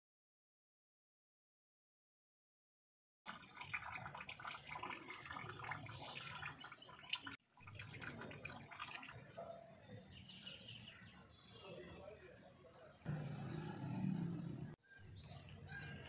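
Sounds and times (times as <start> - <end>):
liquid splashing and dripping: 3.3 - 9.2.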